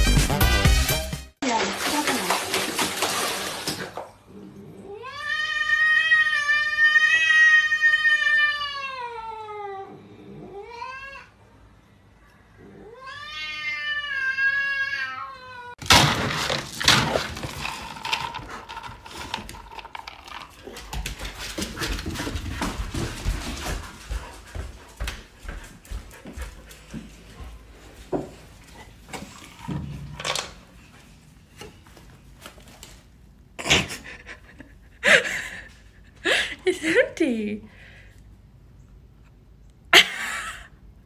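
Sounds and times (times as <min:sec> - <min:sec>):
cat yowling: 0:12.8 - 0:15.8
clatter and scuffling with knocks: 0:15.8 - 0:25.2.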